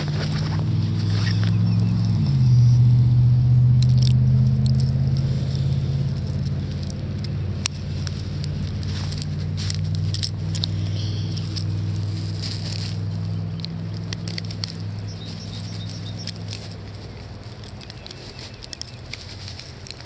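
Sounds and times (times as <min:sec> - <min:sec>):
engine running with low hum: 0:00.0 - 0:20.0
light scattered clicks: 0:13.4 - 0:20.0.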